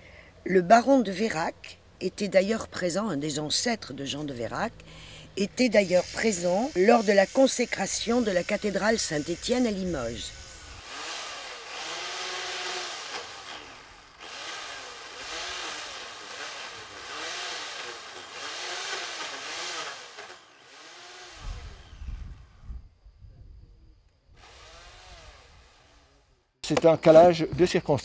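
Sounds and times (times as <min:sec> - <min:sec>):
chainsaw revving cutting wood: 0:05.8 - 0:22.1, 0:24.4 - 0:26.2.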